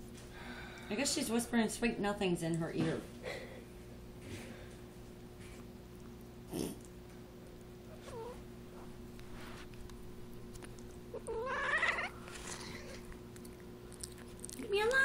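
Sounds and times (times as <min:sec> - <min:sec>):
cat yowling: 0:11.1 - 0:12.2.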